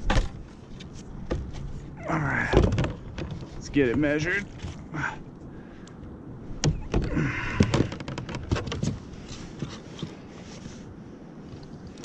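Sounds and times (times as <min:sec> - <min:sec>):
hard plastic knocks and clatter: 0:02.5 - 0:04.8, 0:06.6 - 0:09.0.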